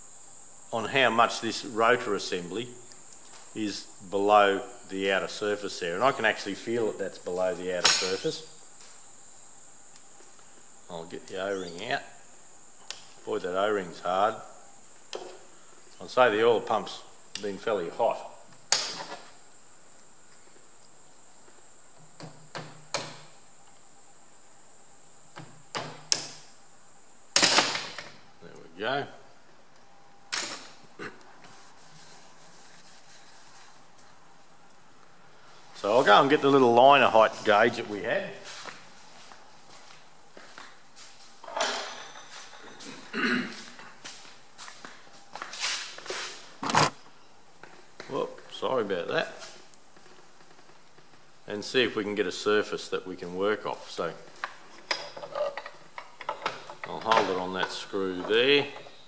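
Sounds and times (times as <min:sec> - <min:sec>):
man coughing: 0:31.0 - 0:31.2, 0:42.8 - 0:43.7
shuffling and handling noises: 0:31.4 - 0:36.5, 0:37.2 - 0:41.4, 0:42.2 - 0:46.9.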